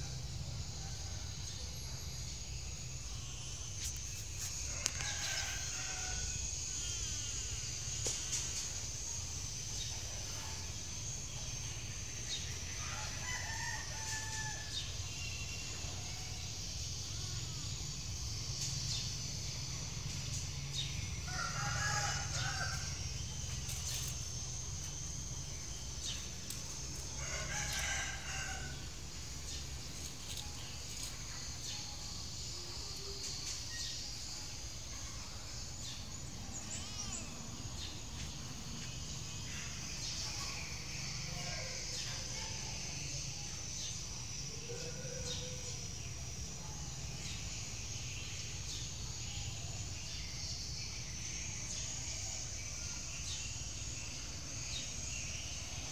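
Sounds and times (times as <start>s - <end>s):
high insect drone: 0.0s - 55.9s
rooster crowing: 4.7s - 6.5s, 12.7s - 14.9s, 21.2s - 23.1s, 27.1s - 29.0s.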